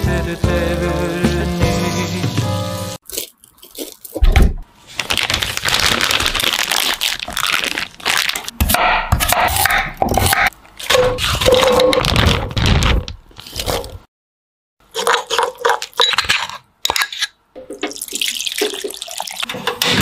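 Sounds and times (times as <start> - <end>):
plastic bag crinkling: 3.0 - 4.2, 4.8 - 8.5, 11.4 - 14.0
cabbage leaves rustling and squeaking: 11.1 - 12.4.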